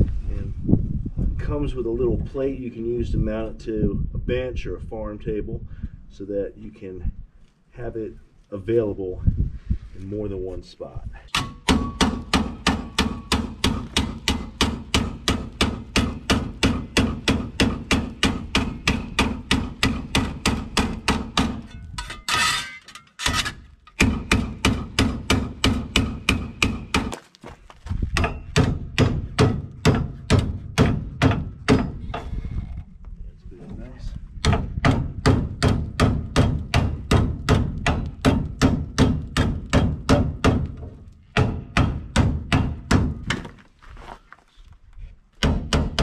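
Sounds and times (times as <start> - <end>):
hammer beating steel plate: 11.4 - 21.9, 24.0 - 27.1, 28.2 - 32.0, 34.4 - 43.2.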